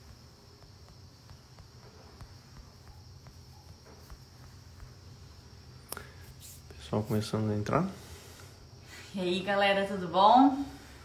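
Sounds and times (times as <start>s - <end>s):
faint ticks and taps: 0.0s - 5.3s
high-pitched hiss: 0.0s - 11.0s.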